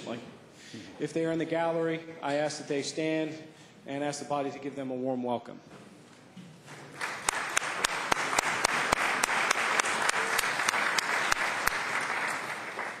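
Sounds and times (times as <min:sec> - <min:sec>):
crowd applauding: 0:06.7 - 0:13.0
sharp individual claps: 0:06.9 - 0:13.0.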